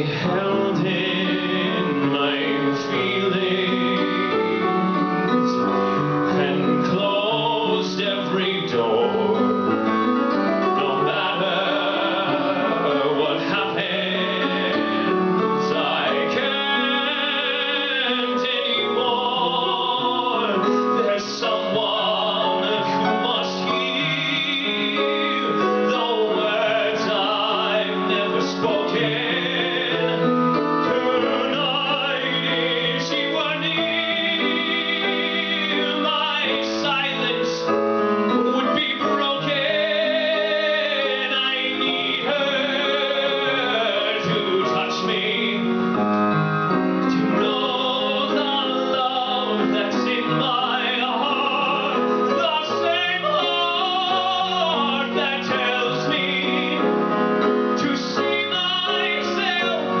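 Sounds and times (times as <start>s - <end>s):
piano accompaniment: 0.0s - 60.0s
man singing a slow ballad: 47.3s - 57.0s.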